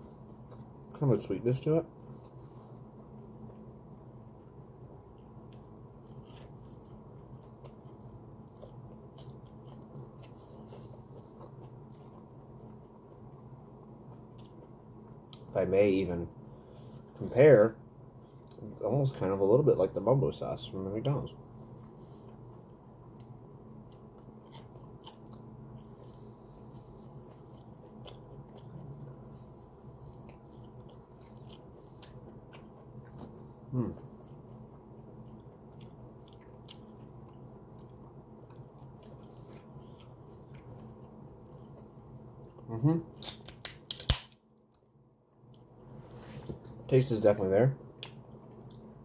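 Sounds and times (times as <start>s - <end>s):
steady low hum: 0.0s - 49.0s
person chewing fried chicken: 2.0s - 13.3s, 21.8s - 42.7s.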